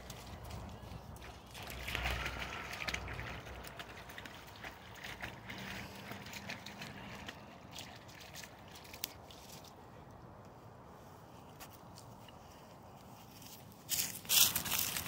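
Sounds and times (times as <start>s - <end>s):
dog splashing through puddle: 0.0s - 9.8s, 14.0s - 15.0s.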